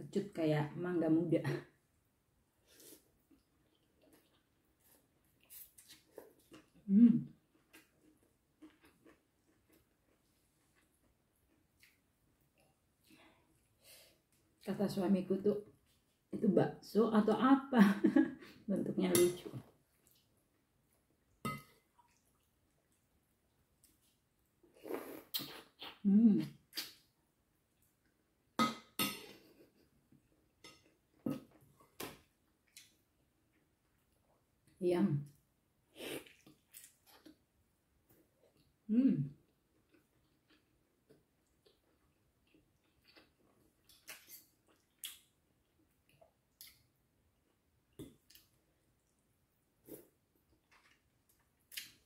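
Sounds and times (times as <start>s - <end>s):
soft eating sounds: 1.7s - 14.8s, 15.5s - 16.4s, 18.0s - 52.0s
person chewing: 7.4s - 12.7s, 36.2s - 37.4s, 39.7s - 49.2s
cutlery clinking on ceramic bowl: 21.5s - 21.8s, 28.6s - 29.3s.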